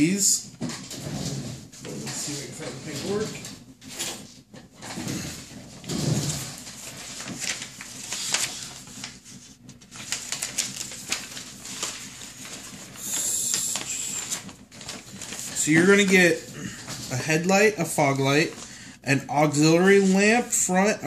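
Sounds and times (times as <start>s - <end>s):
paper rustling and crinkling: 1.7s - 20.8s.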